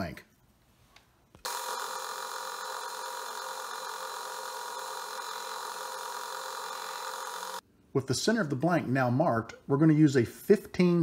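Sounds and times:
drill bit drilling metal: 1.5s - 7.6s
metal lathe whining: 1.5s - 7.6s.

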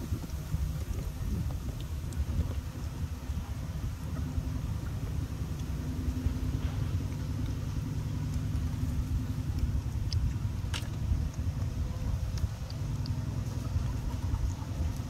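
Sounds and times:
faint hum: 0.0s - 15.0s
low rumble: 0.0s - 15.0s.

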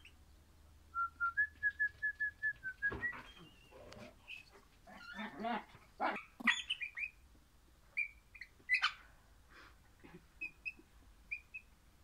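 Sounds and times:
parrot high chirping calls: 6.4s - 7.2s, 8.0s - 9.0s.

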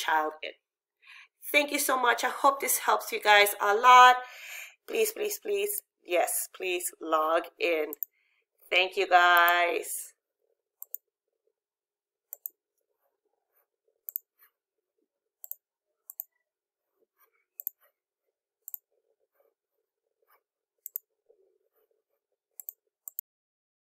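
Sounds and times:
computer mouse clicking: 7.9s - 8.2s, 10.8s - 11.1s, 12.3s - 12.6s, 14.1s - 14.4s, 15.4s - 16.4s, 17.5s - 17.9s, 18.6s - 18.9s, 20.8s - 21.1s, 22.6s - 23.2s.

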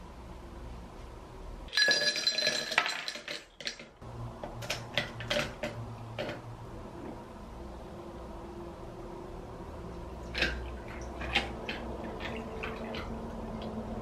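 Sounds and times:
ice cubes clinking into glass: 1.7s - 3.8s.

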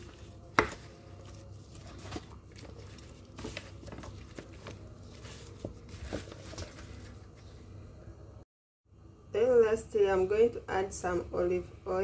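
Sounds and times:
squelching of mixed meat: 0.0s - 6.9s
plastic glove rustling: 0.0s - 7.7s.

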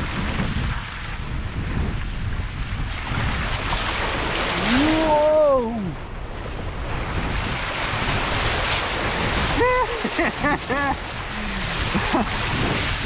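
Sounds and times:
wind on microphone: 0.0s - 13.0s
water splashing against car: 2.6s - 13.0s
man shouting: 4.6s - 6.0s.

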